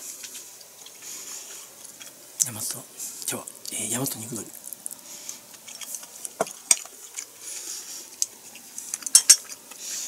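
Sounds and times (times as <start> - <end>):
person chewing food: 3.0 - 10.0
mouth clicks and smacks: 4.4 - 5.0.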